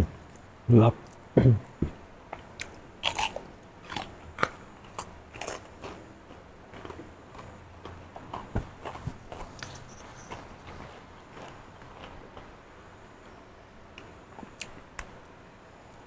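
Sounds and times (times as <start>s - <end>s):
crunching and chewing eggplant: 2.4s - 12.6s.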